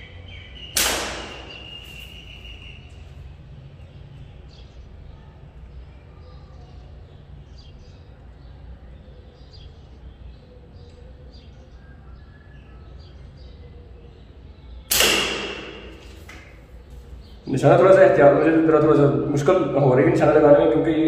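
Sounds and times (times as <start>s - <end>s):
slingshot snap: 0.8s - 2.0s, 14.9s - 16.6s.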